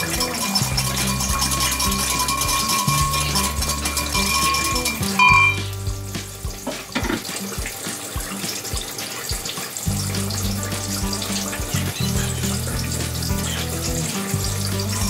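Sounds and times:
spoon clinking against glass: 0.0 - 5.7
background music: 0.0 - 15.0.

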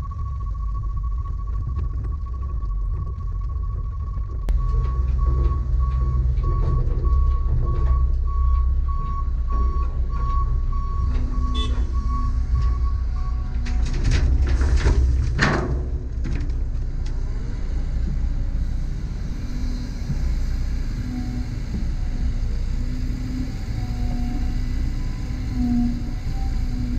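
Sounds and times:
high beeping alarm: 0.0 - 13.6
diesel engines idling: 0.0 - 26.9.

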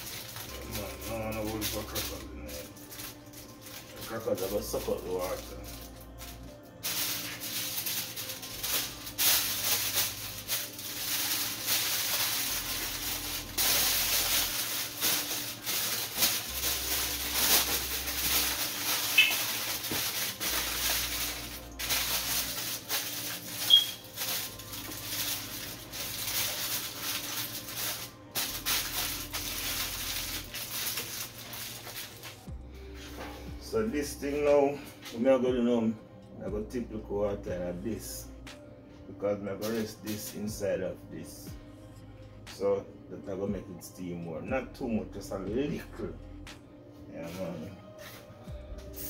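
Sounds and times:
aluminium foil crinkling: 0.0 - 33.3, 39.6 - 40.4
background music: 0.0 - 49.0.

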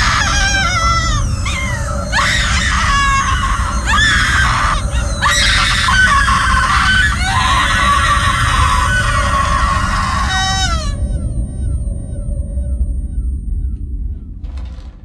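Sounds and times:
woman screaming: 0.0 - 11.2
steady low rumble: 0.0 - 15.0.

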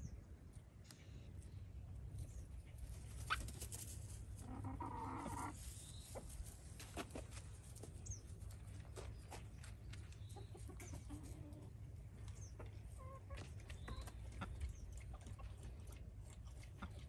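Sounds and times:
chicken calling: 4.4 - 5.6.

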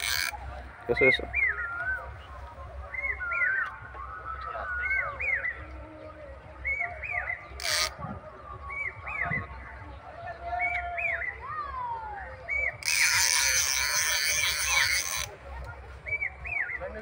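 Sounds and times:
bird singing whistled phrase: 2.8 - 5.8, 6.6 - 9.7, 10.4 - 15.0, 16.0 - 17.0.

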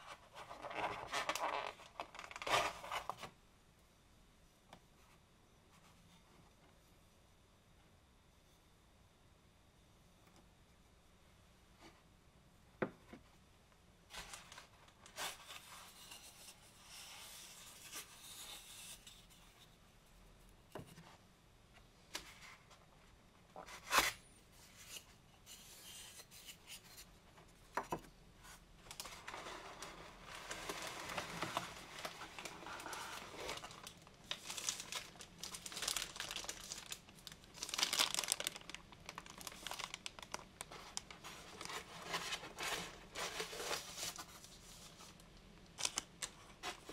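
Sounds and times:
plastic bag crinkling: 0.6 - 3.1, 28.9 - 44.2, 45.1 - 46.9.

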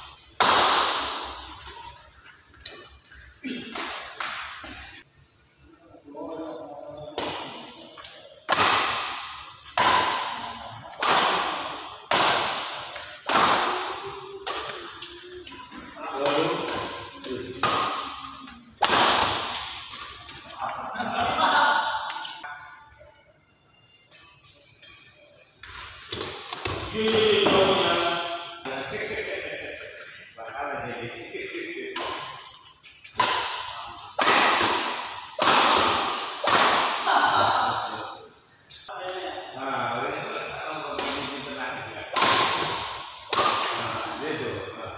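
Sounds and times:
rackets hitting shuttlecock: 0.0 - 1.9, 2.6 - 4.9, 7.2 - 20.8, 25.6 - 28.2, 31.9 - 38.2, 40.9 - 44.2.

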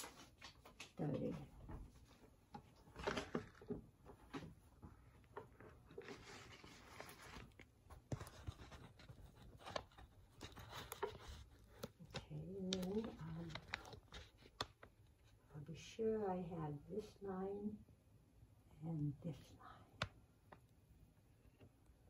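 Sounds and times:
paintbrush rustling on canvas: 4.8 - 15.4.

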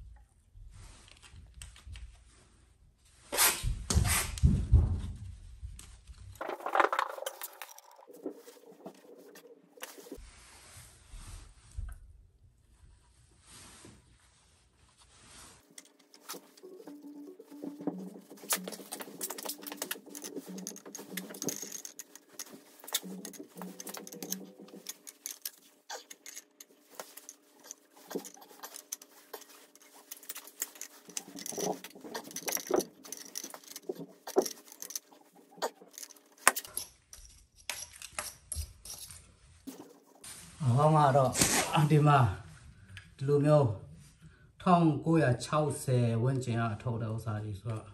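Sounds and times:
metal fittings clicking and tapping: 15.7 - 39.1.

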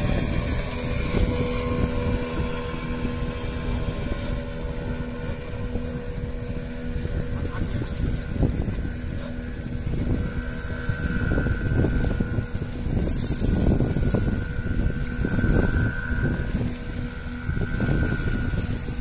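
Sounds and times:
engine hum: 0.0 - 19.0
wind buffeting microphone: 0.0 - 19.0.

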